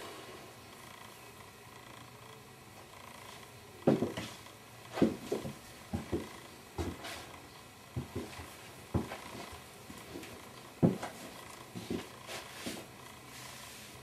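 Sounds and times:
footsteps on wooden floor: 0:03.8 - 0:07.3, 0:08.0 - 0:12.9.

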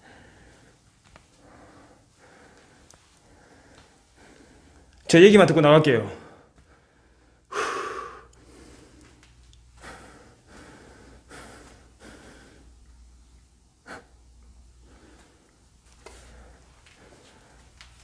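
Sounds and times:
man breathing heavily: 0:00.0 - 0:05.0, 0:06.1 - 0:18.0.

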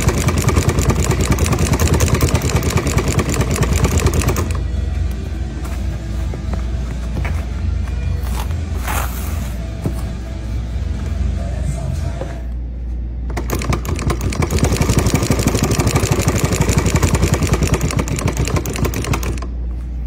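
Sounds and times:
embroidery machine stitching clatter: 0:00.0 - 0:04.6, 0:13.3 - 0:19.5
low machine hum: 0:00.0 - 0:20.0.

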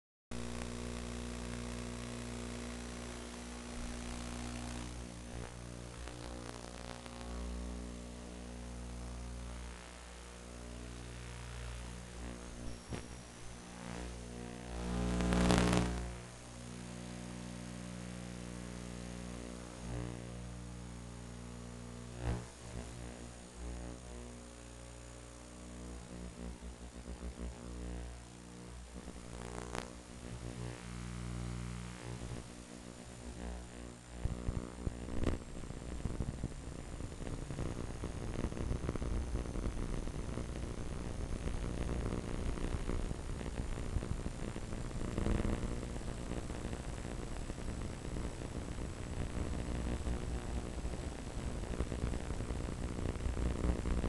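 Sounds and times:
electrical hum: 0:00.4 - 0:54.0.

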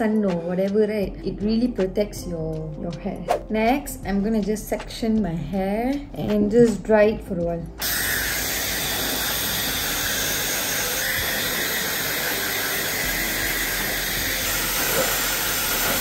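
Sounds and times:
hair dryer running: 0:07.8 - 0:16.0.

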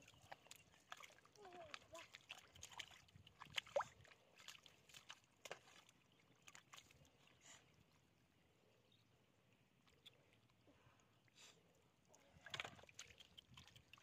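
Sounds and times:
hands sloshing in wet mud: 0:00.0 - 0:07.6, 0:12.2 - 0:14.0.

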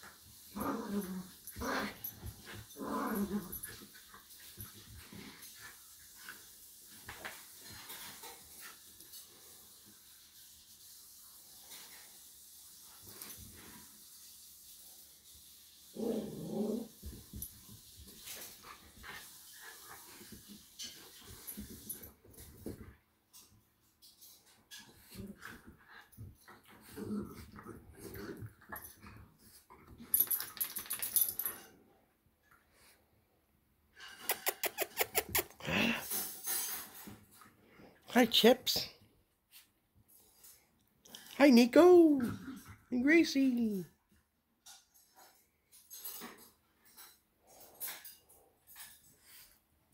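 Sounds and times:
small dogs growling: 0:00.5 - 0:03.8, 0:16.0 - 0:17.0, 0:26.8 - 0:28.6.

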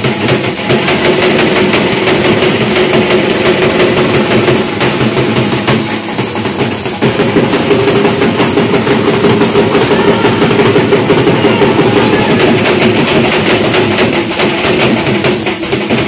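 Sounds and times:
dhol drumming: 0:00.0 - 0:16.0.

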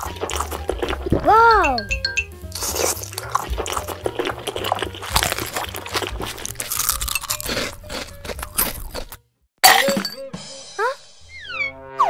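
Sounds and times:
crunching and crackling chewing: 0:00.0 - 0:01.2, 0:02.5 - 0:09.2
background music bass line: 0:00.0 - 0:06.6.

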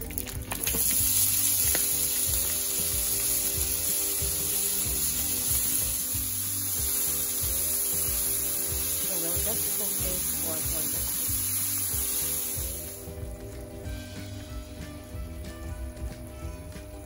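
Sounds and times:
bacon sizzling in a frying pan: 0:00.0 - 0:16.3
background music: 0:00.0 - 0:17.0.

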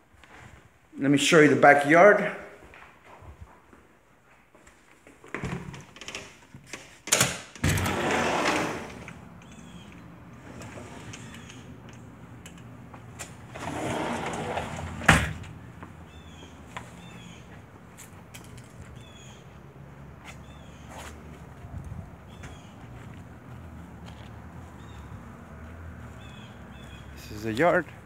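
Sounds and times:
sliding glass door rolling: 0:07.6 - 0:09.6, 0:10.3 - 0:12.1, 0:13.1 - 0:15.6.

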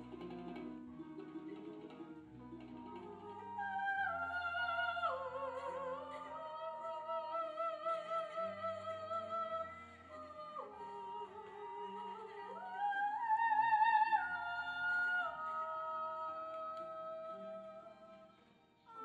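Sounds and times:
soft instrumental accompaniment: 0:00.0 - 0:19.0
woman singing operatically: 0:02.9 - 0:18.2.

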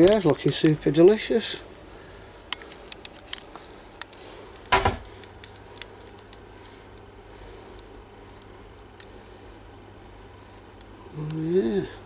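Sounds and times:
soft breathy hisses: 0:09.0 - 0:09.8.

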